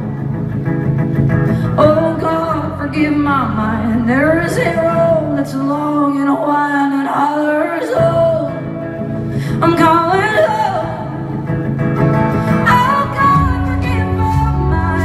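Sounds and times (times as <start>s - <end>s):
live folk-rock band playing: 0.0s - 15.0s
person singing: 1.7s - 8.8s.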